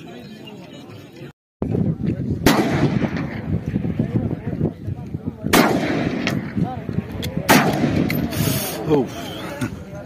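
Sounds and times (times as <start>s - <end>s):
rifle shots with echo: 2.4s - 3.6s, 5.4s - 6.7s, 7.3s - 8.3s.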